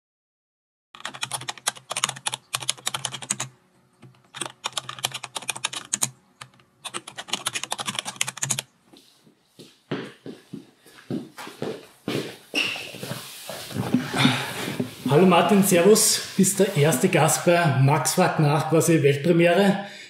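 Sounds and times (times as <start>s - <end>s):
rapid keyboard typing: 1.0s - 8.7s.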